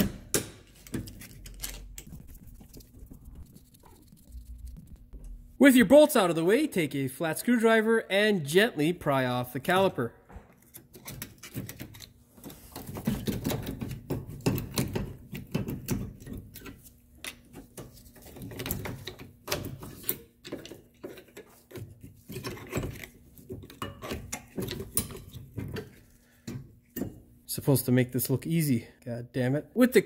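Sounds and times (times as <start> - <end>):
metal clicks and scraping: 0.0 - 2.3.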